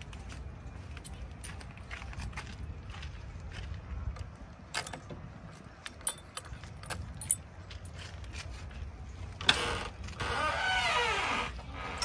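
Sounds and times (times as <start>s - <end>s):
keys jingling: 5.9s - 8.2s.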